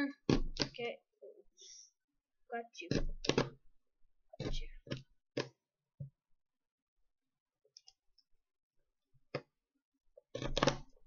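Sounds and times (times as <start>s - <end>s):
pin piercing cardboard: 10.3s - 11.0s.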